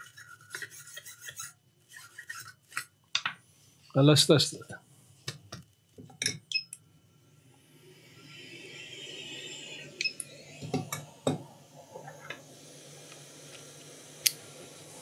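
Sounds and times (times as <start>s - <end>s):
hot air hiss: 7.1s - 15.0s.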